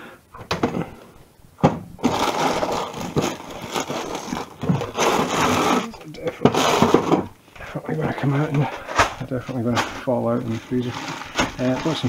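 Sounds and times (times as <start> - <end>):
freezer drawer and packets knocking: 0.4 - 1.0, 1.6 - 5.8, 10.8 - 12.0
plastic bags rustling: 0.6 - 12.0.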